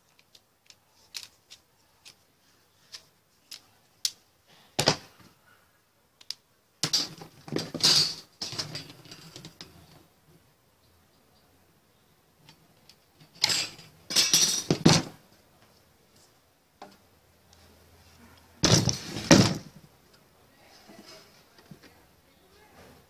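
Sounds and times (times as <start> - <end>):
metallic clatter and scraping: 6.8 - 10.0, 18.6 - 19.8.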